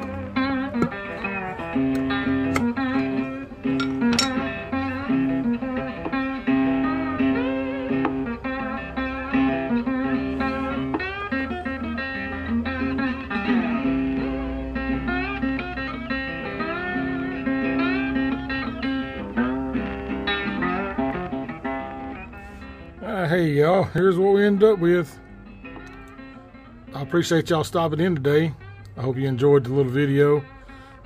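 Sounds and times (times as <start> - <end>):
plucked bluesy guitar: 0.0 - 31.0.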